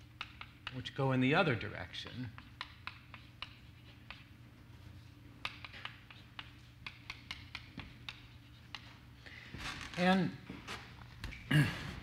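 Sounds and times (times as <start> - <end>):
chalk tapping on a blackboard: 0.0 - 1.0, 2.0 - 4.4, 5.4 - 9.0
steady low hum: 0.0 - 12.0.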